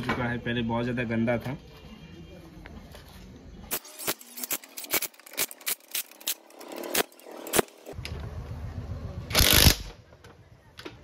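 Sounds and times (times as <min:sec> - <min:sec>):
cordless impact wrench running: 0:09.3 - 0:09.9.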